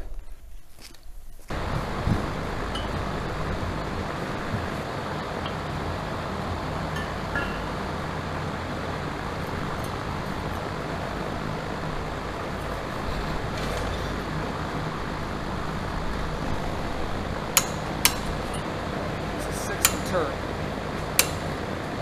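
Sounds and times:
low background hum: 0:00.0 - 0:22.0.

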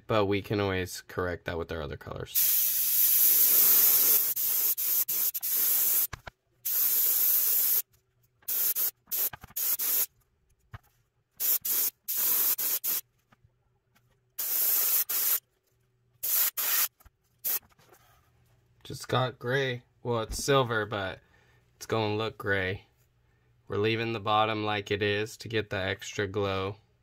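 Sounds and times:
airbrush air hiss bursts: 0:02.4 - 0:07.8, 0:08.5 - 0:10.1, 0:11.4 - 0:13.0, 0:14.4 - 0:15.4, 0:16.2 - 0:17.6.

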